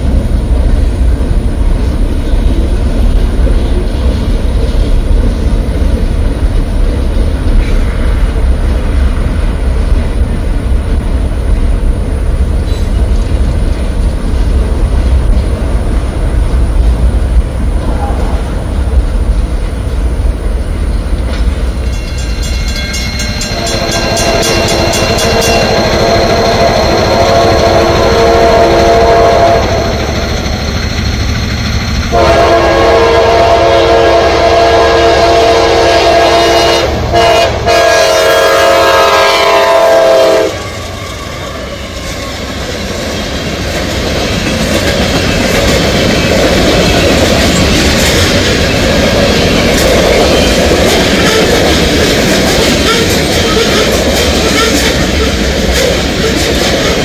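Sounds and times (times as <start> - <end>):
wheels clicking over rail joints: 0.0 - 27.1, 41.8 - 57.0
freight train rolling: 0.0 - 57.0
locomotive horn blasts: 23.4 - 30.0, 32.1 - 42.2.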